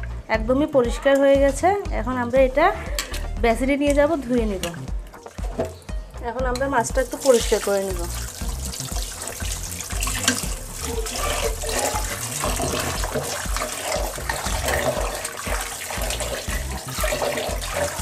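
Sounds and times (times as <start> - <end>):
tap water into metal bowl: 7.0 - 18.0.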